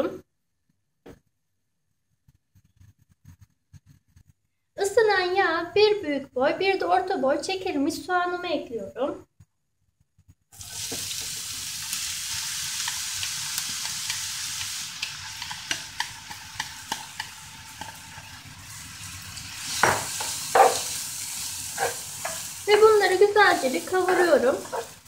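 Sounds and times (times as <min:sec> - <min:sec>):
onions sizzling in oil: 0:10.6 - 0:25.0
spatula scraping pan: 0:12.8 - 0:18.4, 0:19.6 - 0:25.0.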